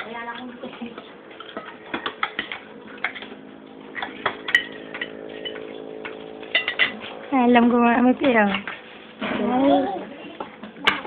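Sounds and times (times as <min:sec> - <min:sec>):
low hum: 0:00.4 - 0:10.8
cutlery clinking on plate: 0:04.0 - 0:05.7.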